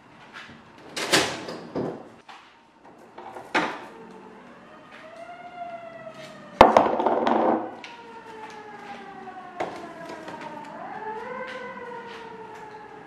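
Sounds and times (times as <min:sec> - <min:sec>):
emergency siren wailing: 0:02.9 - 0:13.0.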